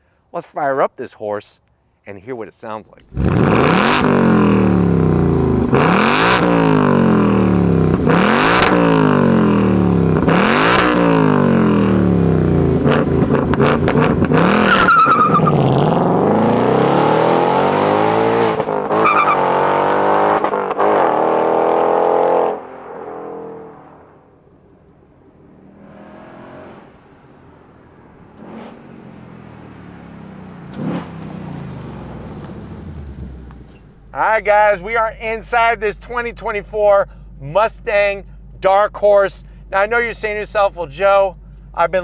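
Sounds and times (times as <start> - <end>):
car engine revving: 3.0 - 35.7
car accelerating hard: 3.1 - 33.8.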